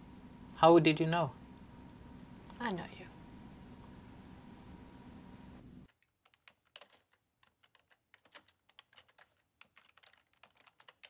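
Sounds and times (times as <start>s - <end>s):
room hum: 0.0s - 9.8s
computer keyboard typing: 5.9s - 11.0s.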